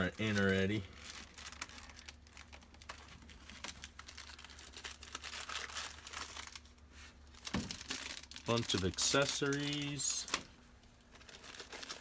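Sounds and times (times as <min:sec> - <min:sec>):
plastic packaging crinkling: 0:00.0 - 0:12.0.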